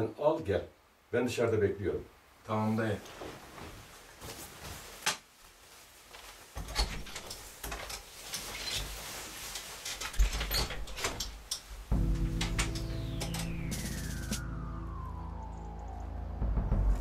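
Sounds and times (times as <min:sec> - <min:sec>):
door and cupboard clatter: 0:06.6 - 0:09.0, 0:09.8 - 0:11.7
low rumble: 0:11.9 - 0:17.0
music: 0:11.9 - 0:17.0.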